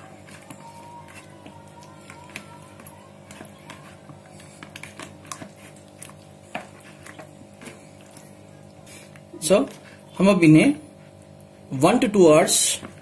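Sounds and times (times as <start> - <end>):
quiet background music: 0.0 - 5.4
hands squishing chicken in marinade: 0.0 - 9.9.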